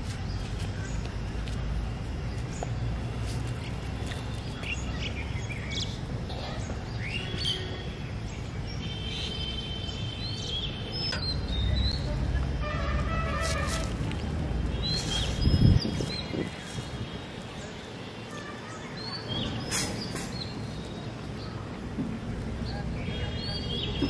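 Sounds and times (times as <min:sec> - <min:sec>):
birds chirping: 0:02.1 - 0:12.4.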